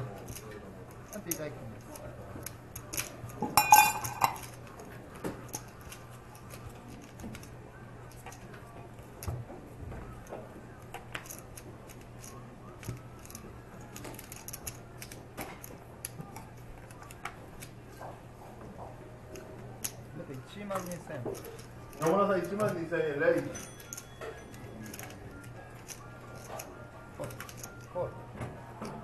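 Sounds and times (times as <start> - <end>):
poker chips clicking and clattering: 0.2 - 4.8, 10.9 - 17.7, 19.4 - 27.9.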